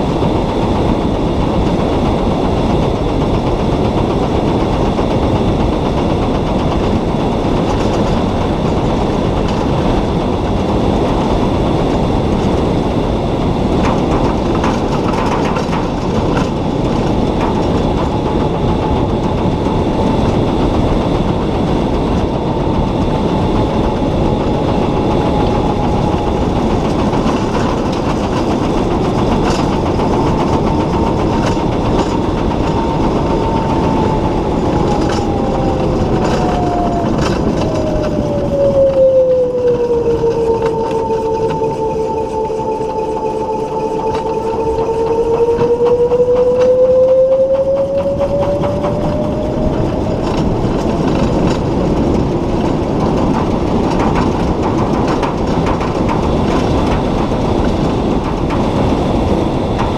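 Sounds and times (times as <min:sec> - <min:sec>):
wind: 0:00.0 - 0:59.9
tyre and road noise: 0:13.7 - 0:59.9.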